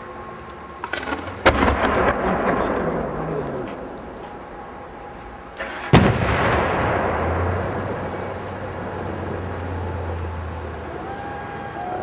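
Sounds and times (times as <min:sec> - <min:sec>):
rumbling echo: 0:00.8 - 0:10.8
firework shell bang: 0:05.6 - 0:07.6.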